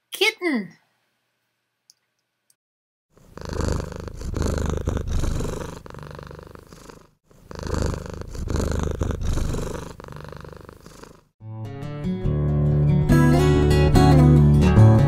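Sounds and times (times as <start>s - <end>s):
cat purring: 3.1s - 11.4s.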